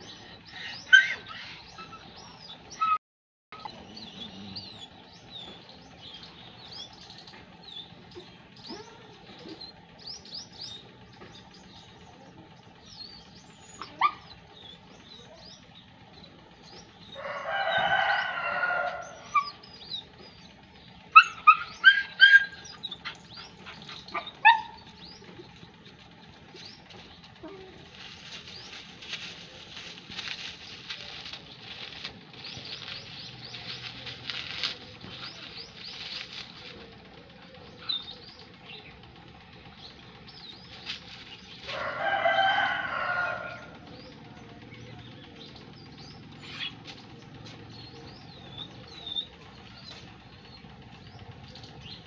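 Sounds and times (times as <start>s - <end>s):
small birds chirping: 0.0s - 3.0s, 3.6s - 52.0s
puppy barking: 0.9s - 2.0s, 13.8s - 14.4s, 21.1s - 24.9s.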